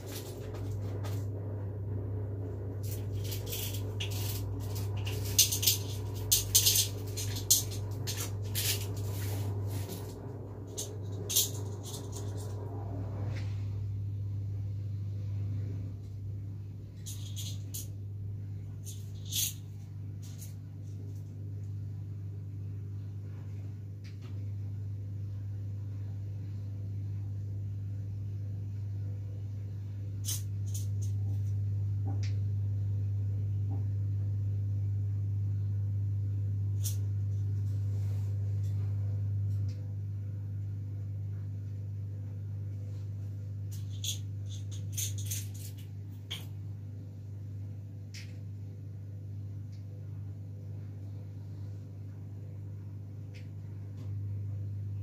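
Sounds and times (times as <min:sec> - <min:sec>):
low electrical hum: 0:00.0 - 0:55.0
objects clicking on counter: 0:02.9 - 0:10.1, 0:43.7 - 0:46.5.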